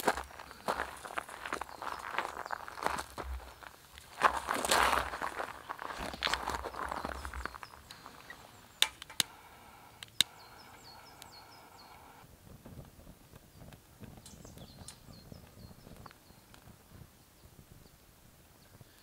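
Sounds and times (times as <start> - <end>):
pine needles crackling: 0.0 - 12.2
small birds chirping: 0.0 - 12.2, 13.3 - 19.0.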